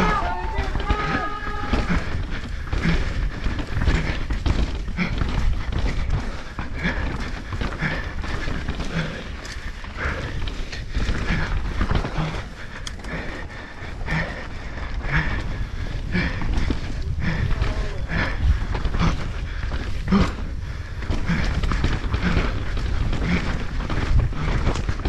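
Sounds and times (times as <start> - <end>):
bike tyres rumbling: 0.0 - 25.0
suspension and chain clattering: 0.0 - 25.0
wind buffeting microphone: 0.0 - 25.0.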